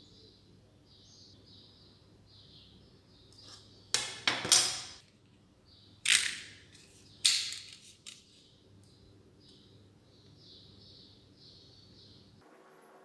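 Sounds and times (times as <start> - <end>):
tools clacking on wooden table: 3.4 - 5.0.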